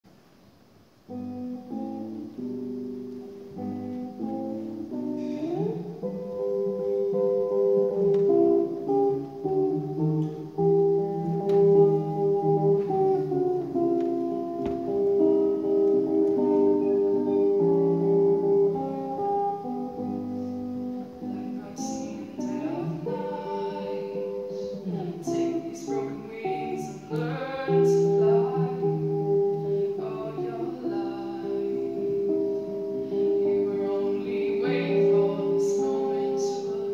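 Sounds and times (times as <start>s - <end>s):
amplified guitar solo: 1.1s - 36.9s
woman singing into microphone: 5.1s - 7.3s, 21.0s - 36.9s.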